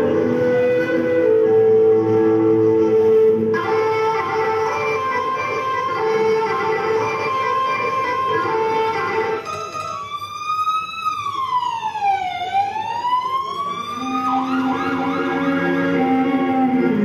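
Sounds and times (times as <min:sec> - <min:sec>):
siren-like sound effect: 0:09.6 - 0:16.8.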